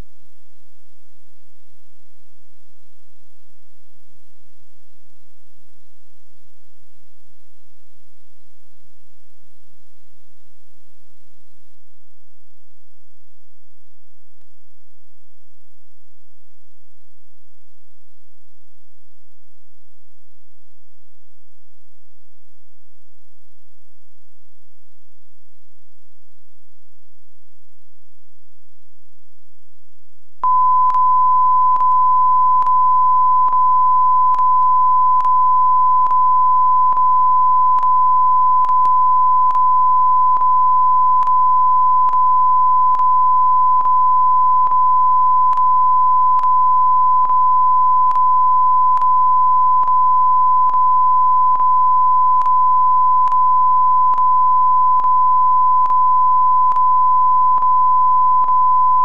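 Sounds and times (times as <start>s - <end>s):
high test tone beep: 30.4s - 59.0s
faint click: 31.7s - 32.8s, 33.4s - 35.4s, 36.9s - 37.1s, 38.6s - 40.6s, 41.2s - 43.2s, 43.8s - 44.0s, 45.5s - 46.6s, 47.2s - 49.2s, 49.8s - 54.4s, 55.0s - 56.1s, 56.7s - 57.8s.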